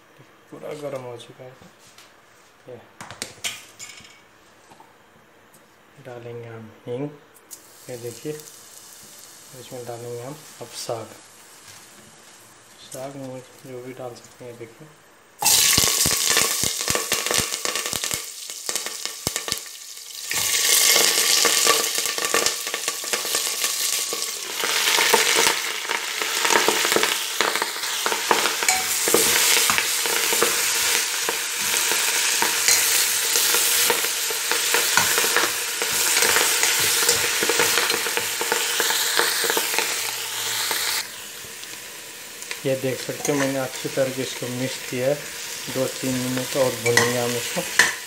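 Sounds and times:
vegetables sizzling in hot oil: 7.5 - 14.4, 15.4 - 48.0.

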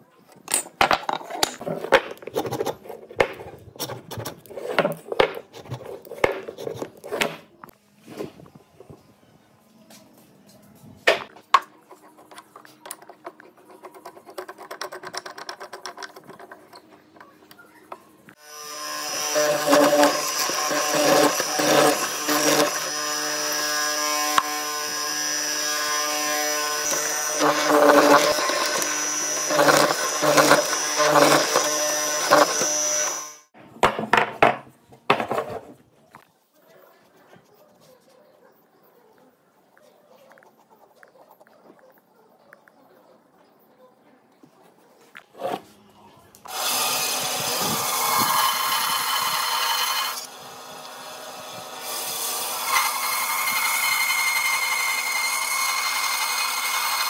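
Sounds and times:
mortiser motor running: 18.4 - 33.5
wooden blocks knocking on bench: 33.8 - 35.8.

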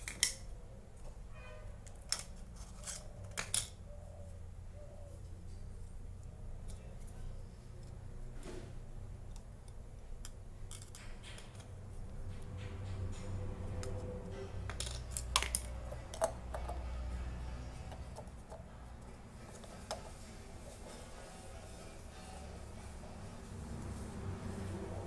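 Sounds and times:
light clicks and taps of plastic parts: 9.2 - 16.8.

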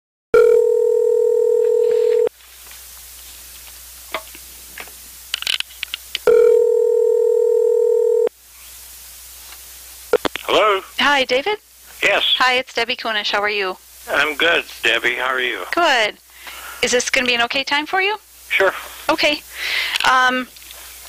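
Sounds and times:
telephone ringback tone: 0.4 - 2.3, 6.3 - 8.3
faint line hiss: 8.3 - 21.0.

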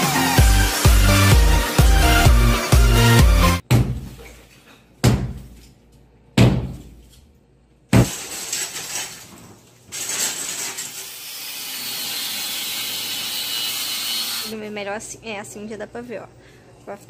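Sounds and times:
falling debris clatter: 8.0 - 11.0.

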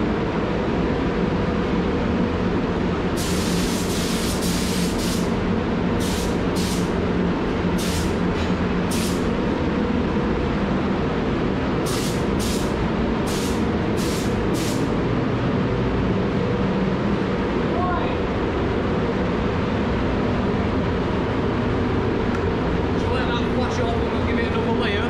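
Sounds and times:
air handling rumble and hum: 0.0 - 25.0
paint spray gun hissing: 3.2 - 5.4, 6.0 - 6.9, 7.8 - 8.2, 8.9 - 9.2, 11.9 - 12.7, 13.3 - 14.9.

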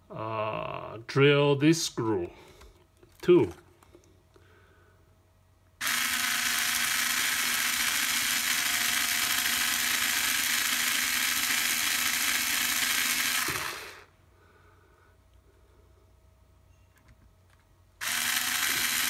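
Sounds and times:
cordless drill boring into metal: 5.8 - 14.1, 18.0 - 19.0.

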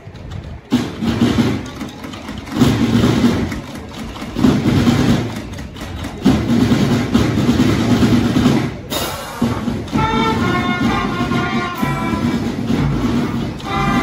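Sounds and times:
school band playing: 6.2 - 14.0.

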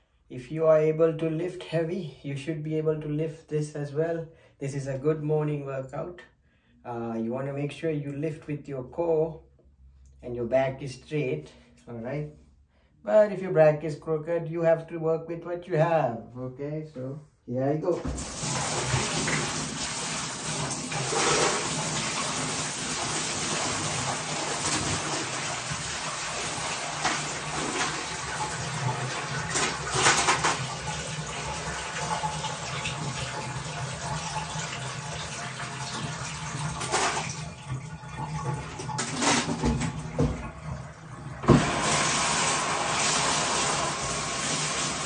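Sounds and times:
water pouring into bathtub: 17.9 - 45.0.

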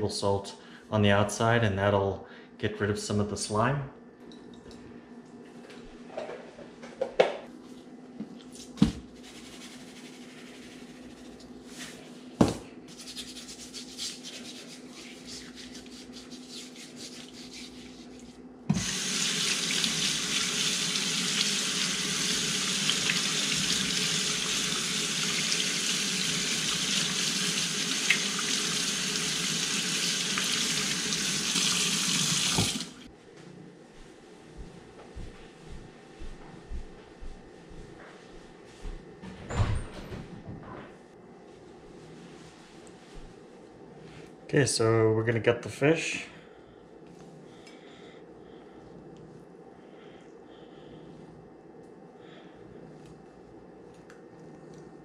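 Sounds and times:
faucet running into steel sink: 18.7 - 33.0.

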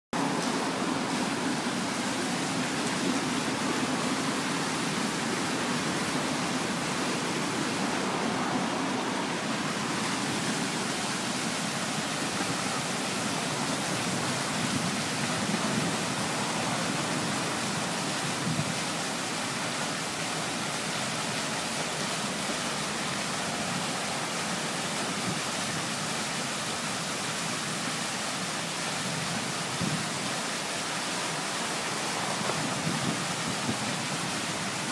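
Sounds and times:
fountain water rushing: 0.2 - 34.9.

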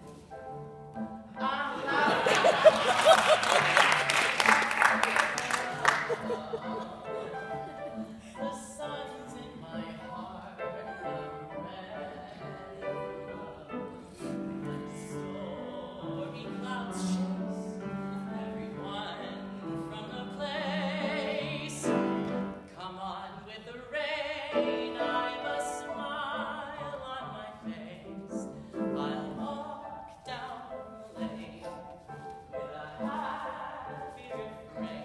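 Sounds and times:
grand piano accompaniment: 0.0 - 35.0
man singing with vibrato: 5.4 - 22.1.

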